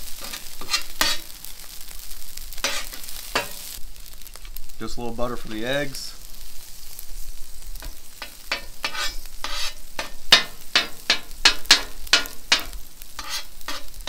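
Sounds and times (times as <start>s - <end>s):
metal spatula scraping steel: 0.0s - 1.3s, 2.6s - 3.7s, 7.8s - 14.0s
butter sizzling on a griddle: 0.0s - 14.0s.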